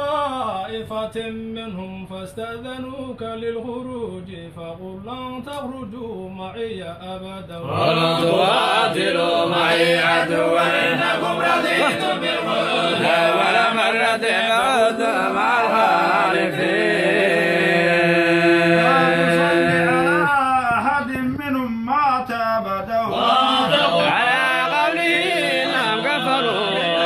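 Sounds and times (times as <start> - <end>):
men chanting: 7.6 - 27.0.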